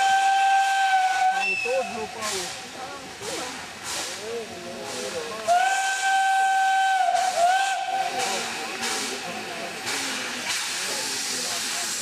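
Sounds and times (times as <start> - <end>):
steam locomotive whistle: 0.0 - 1.8, 5.5 - 8.2
steam hissing: 0.0 - 12.0.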